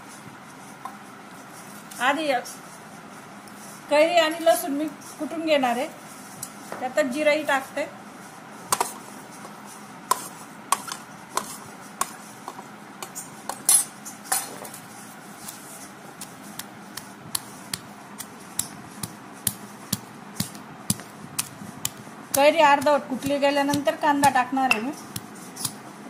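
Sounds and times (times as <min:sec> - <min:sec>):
stone pestle pounding in mortar: 0:16.2 - 0:25.8.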